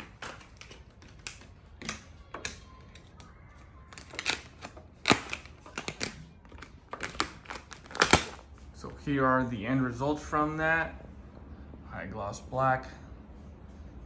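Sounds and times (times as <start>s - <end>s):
vinyl film scraping: 0.0s - 8.6s.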